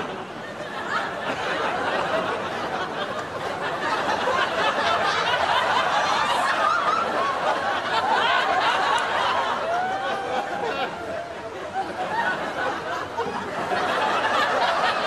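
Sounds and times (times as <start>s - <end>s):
audience laughing: 0.0s - 15.0s.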